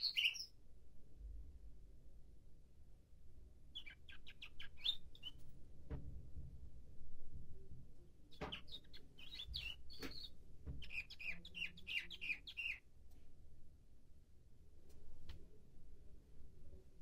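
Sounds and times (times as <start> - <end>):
canary singing: 0.0 - 0.5, 3.7 - 5.4, 8.3 - 12.8.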